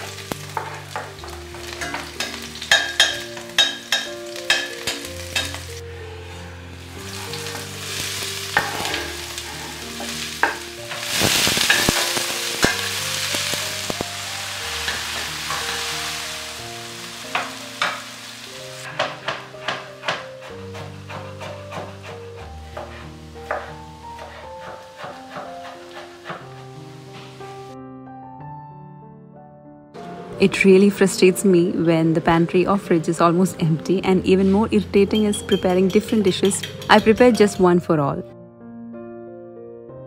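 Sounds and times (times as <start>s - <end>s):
garlic sizzling in hot oil: 0.0s - 5.8s, 6.6s - 27.7s
metal utensil scraping pan: 0.0s - 5.8s, 7.0s - 14.0s, 14.6s - 16.6s
knife chopping on wooden board: 19.0s - 26.5s.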